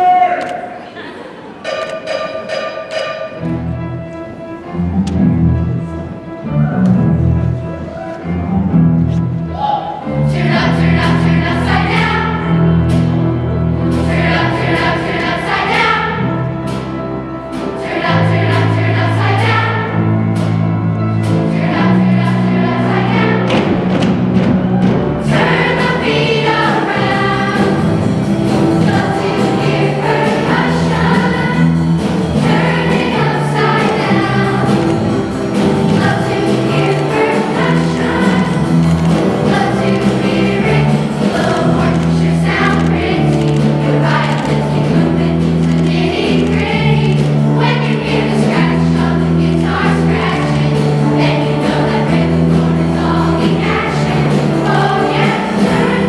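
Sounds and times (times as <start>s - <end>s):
choir singing up-tempo song: 9.8s - 56.0s
instrumental backing with steady beat: 10.4s - 56.0s.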